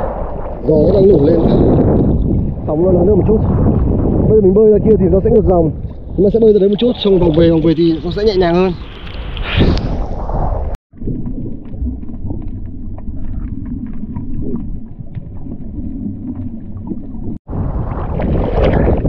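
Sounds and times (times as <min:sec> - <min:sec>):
underwater rumbling wash: 0:00.0 - 0:19.0
waves splashing: 0:06.0 - 0:10.2.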